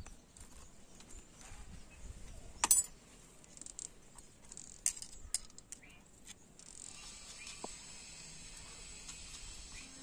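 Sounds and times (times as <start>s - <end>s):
metal engine parts clinking: 2.6s - 3.0s.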